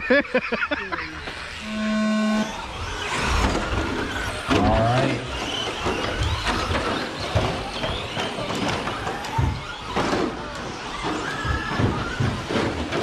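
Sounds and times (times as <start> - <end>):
electric motor whine: 1.2 - 9.9.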